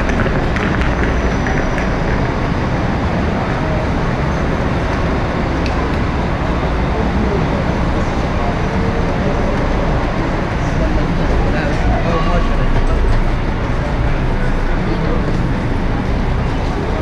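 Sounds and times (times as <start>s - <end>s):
bus engines idling and echoing: 0.0s - 17.0s.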